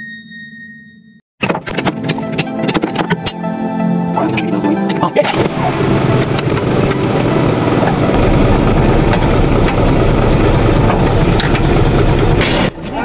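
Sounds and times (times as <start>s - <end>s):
diesel engine idling: 5.3s - 12.8s
deep low rumble: 5.6s - 12.7s.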